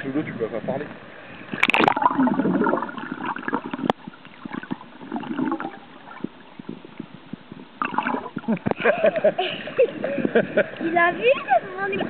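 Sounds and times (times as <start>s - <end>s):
underwater bubbling: 0.2s - 9.0s.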